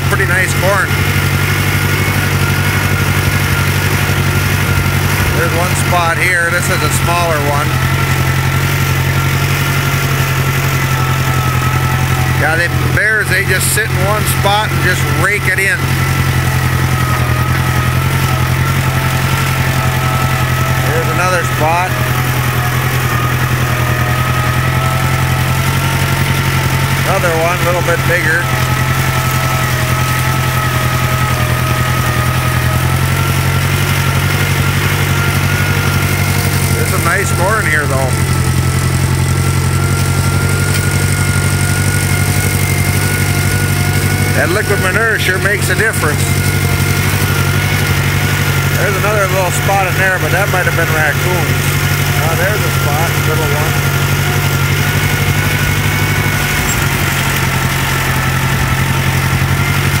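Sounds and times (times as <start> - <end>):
farm vehicle engine humming: 0.0 - 60.0.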